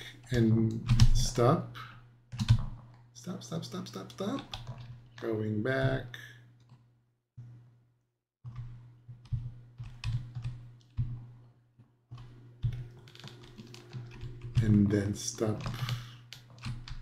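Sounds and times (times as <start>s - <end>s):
low electrical hum: 0.0s - 17.0s
computer keyboard clicks: 15.5s - 17.0s.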